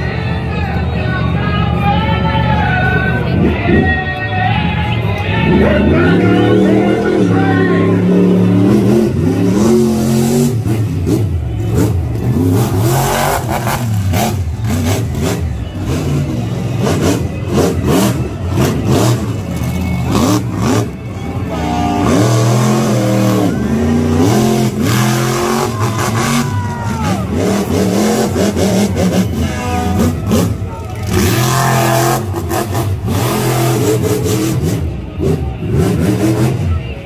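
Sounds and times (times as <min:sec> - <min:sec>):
truck engine revving: 0:00.0 - 0:37.0.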